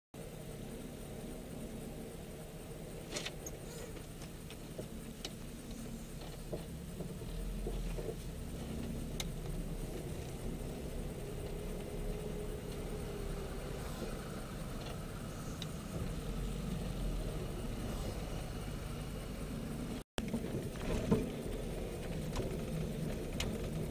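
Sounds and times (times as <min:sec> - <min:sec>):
car engine idling: 0:00.2 - 0:23.9
light cabin clicks and rattles: 0:20.2 - 0:23.9.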